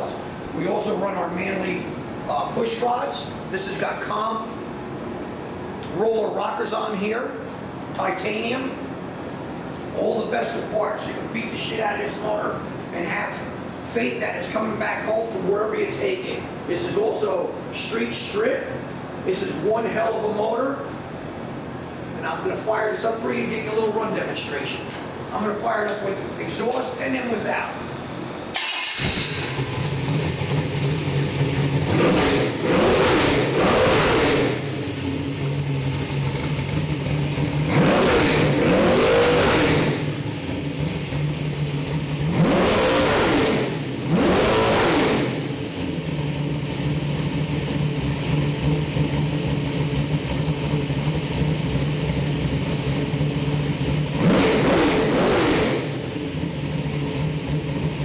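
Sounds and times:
car engine starting and idling: 28.5 - 58.0
engine revving in short blips: 31.8 - 34.8, 42.2 - 45.6, 54.1 - 56.2.

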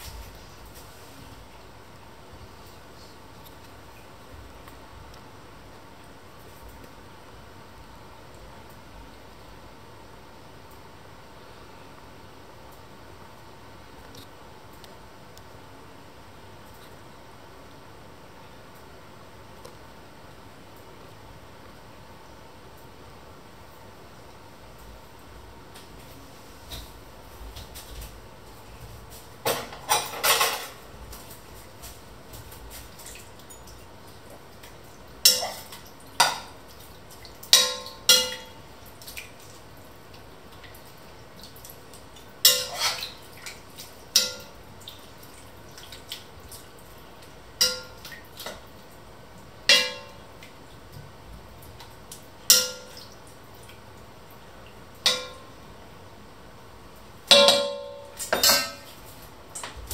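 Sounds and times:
stew being stirred: 29.1 - 55.6
spatula knocking on pot: 49.7 - 50.2.

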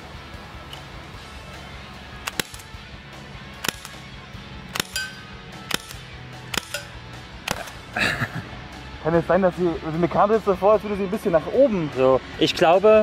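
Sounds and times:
revolver firing sharp shots: 2.2 - 2.8, 3.6 - 4.0, 4.7 - 7.8.

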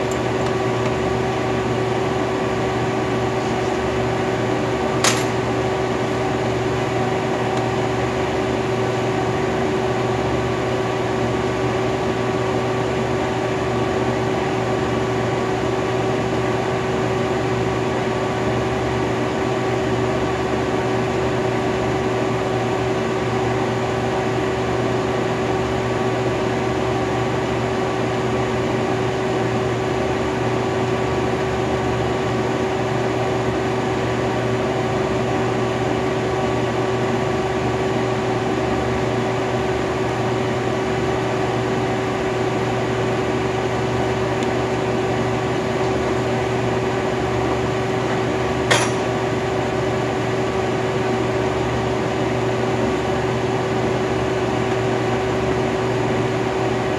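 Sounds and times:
machine pump humming: 0.0 - 56.9
sharp click: 5.0 - 5.4.

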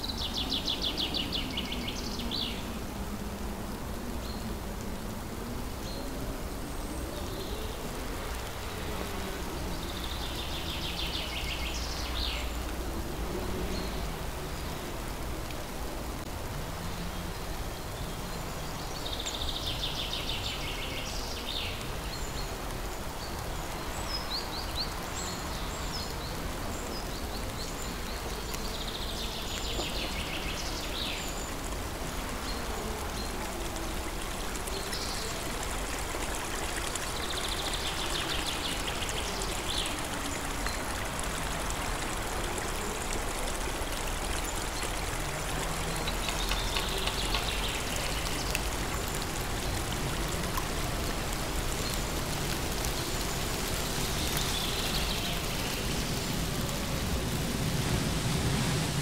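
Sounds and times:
steady rushing noise: 35.3 - 59.0.

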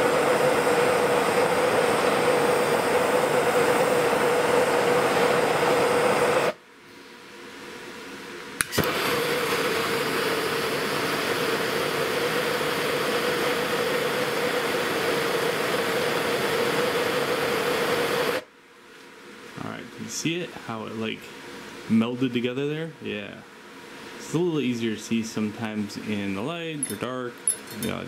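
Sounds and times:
propane torch hissing: 0.0 - 6.6, 8.6 - 18.5.

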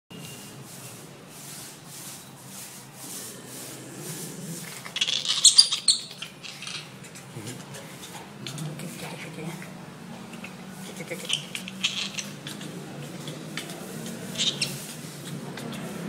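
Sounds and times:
monkey squeaking: 4.8 - 7.4, 10.2 - 15.8.

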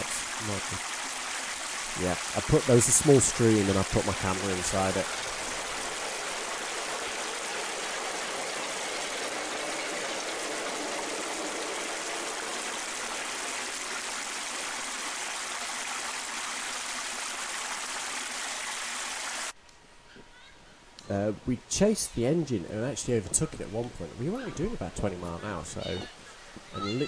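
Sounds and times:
stream rushing: 0.0 - 19.6.

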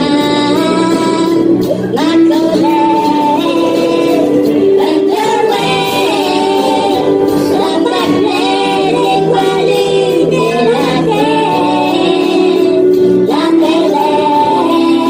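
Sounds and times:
backing music: 0.0 - 15.0
high childlike voices singing: 0.0 - 15.0.

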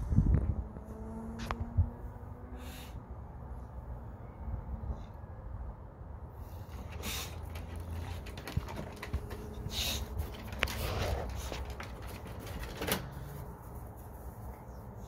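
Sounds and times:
dog huffing breath: 6.4 - 12.3
dog claws tapping wooden boards: 6.9 - 13.1.

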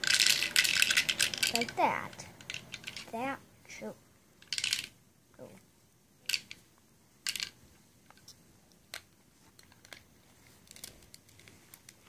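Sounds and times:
plastic bricks clicking together: 0.0 - 3.1, 4.4 - 5.0, 6.2 - 6.6, 7.2 - 8.2.

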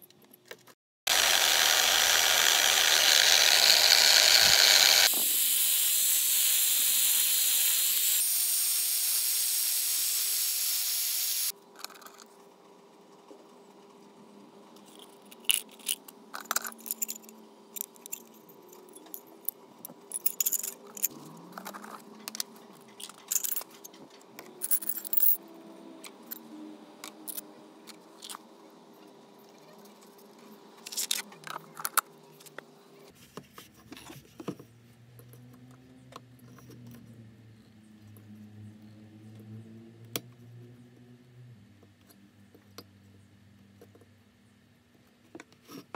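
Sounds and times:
small metal parts clinking: 14.8 - 19.5, 20.1 - 24.0, 24.6 - 25.4.

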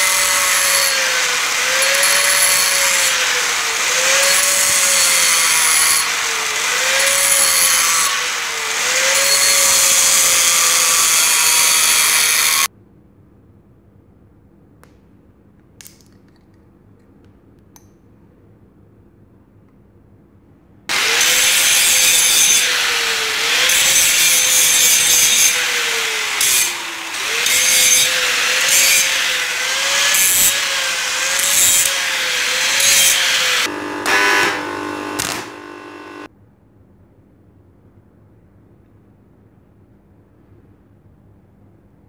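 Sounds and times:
angle grinder grinding steel: 0.0 - 12.7, 20.9 - 36.3.

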